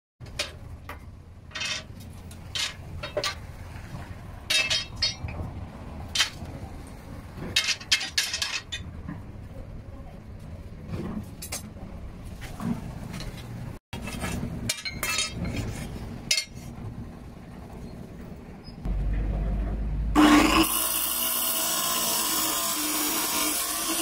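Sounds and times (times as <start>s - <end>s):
scrap steel clanking: 1.5s - 3.5s, 4.5s - 5.5s, 7.4s - 9.1s, 12.6s - 16.8s.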